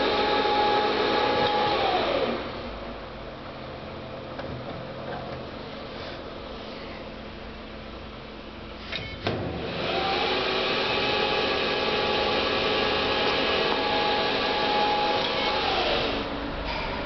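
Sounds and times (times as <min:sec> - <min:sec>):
lathe spindle whining: 0:00.0 - 0:02.5, 0:09.6 - 0:17.0.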